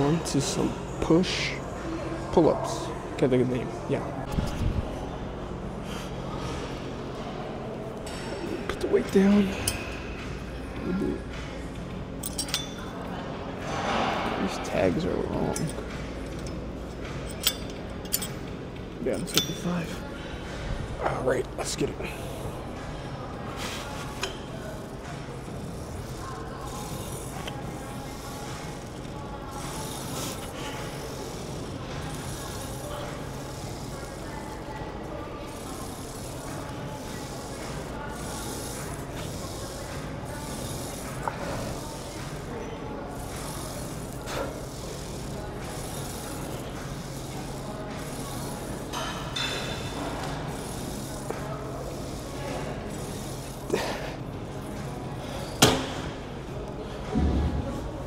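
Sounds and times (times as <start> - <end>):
steady low hum: 0.0 - 58.0
faint murmur: 0.6 - 58.0
cable running over pulleys: 21.0 - 58.0.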